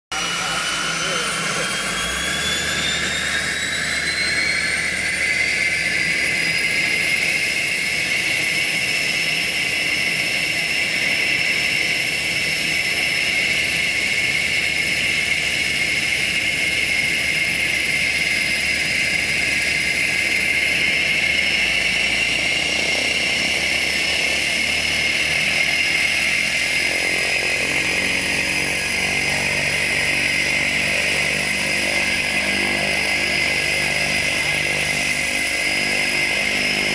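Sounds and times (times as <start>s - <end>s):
turboprop turbine whine: 0.1s - 36.9s.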